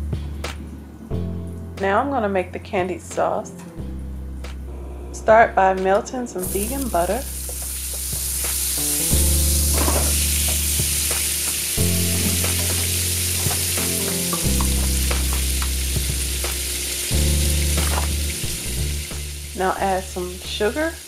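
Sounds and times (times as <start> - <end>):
low background music: 0.0 - 21.0
butter sizzling in a skillet: 6.4 - 21.0.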